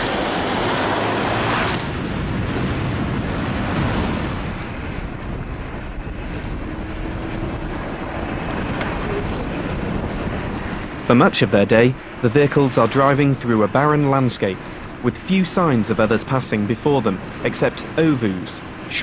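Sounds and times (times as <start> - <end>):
diesel engine rumble: 0.0 - 19.0
wind noise: 0.0 - 19.0.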